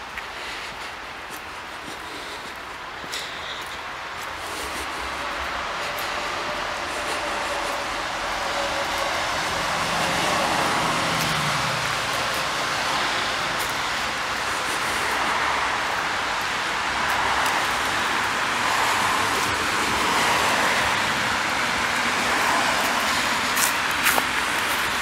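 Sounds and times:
car tyres rushing on road: 0:00.0 - 0:25.0.

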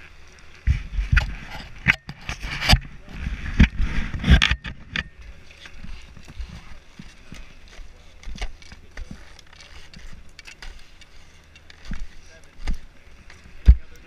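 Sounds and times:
skis knocking on snow: 0:02.2 - 0:14.0.

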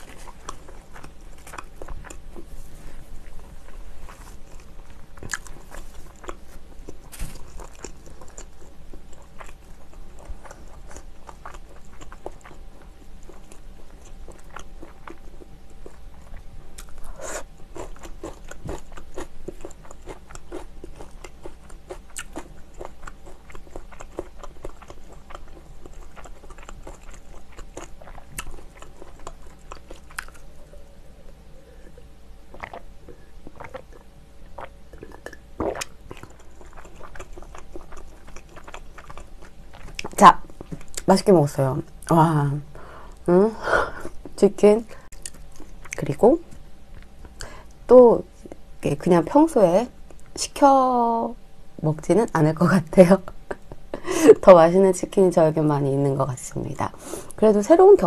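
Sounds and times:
crunchy chewing: 0:00.0 - 0:41.1, 0:45.0 - 0:47.8.

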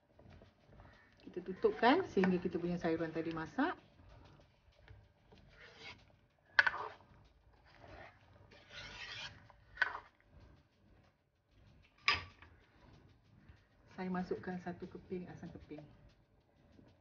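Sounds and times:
metal ladle scraping frying pan: 0:07.8 - 0:10.1.

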